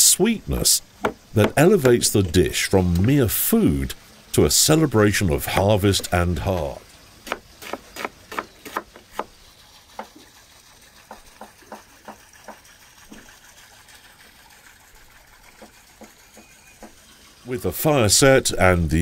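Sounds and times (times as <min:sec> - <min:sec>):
water dripping plops: 0:09.9 - 0:17.0.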